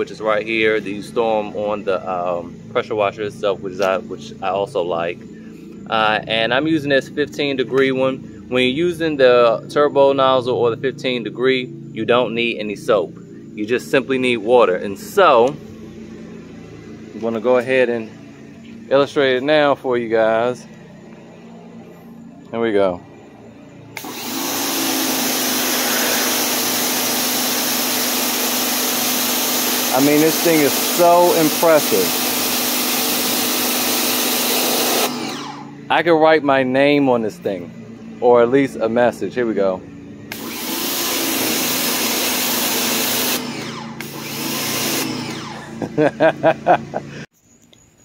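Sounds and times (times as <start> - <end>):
pressure washer motor hum: 12.6 - 22.6, 23.2 - 36.0, 37.6 - 47.3
water jet spraying concrete: 24.0 - 35.1, 44.4 - 45.1.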